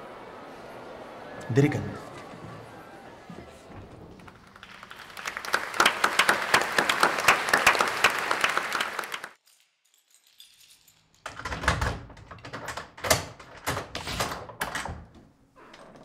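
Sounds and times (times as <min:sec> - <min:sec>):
audience applause: 0:00.0 - 0:09.4.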